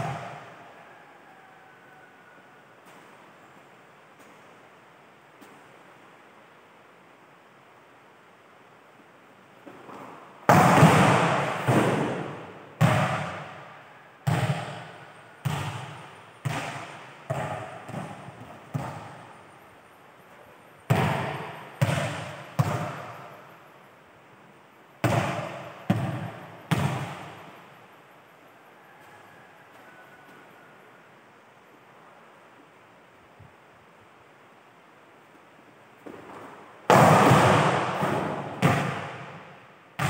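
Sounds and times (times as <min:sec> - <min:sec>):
volleyball smacks echoing in a hall: 0:00.0 - 0:00.5, 0:09.7 - 0:19.4, 0:20.9 - 0:23.4, 0:25.0 - 0:27.5, 0:36.0 - 0:40.0.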